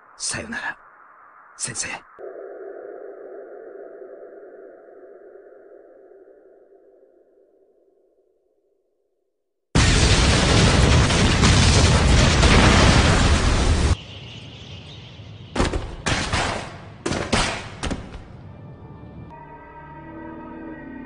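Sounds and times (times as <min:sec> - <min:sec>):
explosion blast and rumble: 0:09.8 - 0:14.0
fire crackle with sharp bursts: 0:09.8 - 0:14.0.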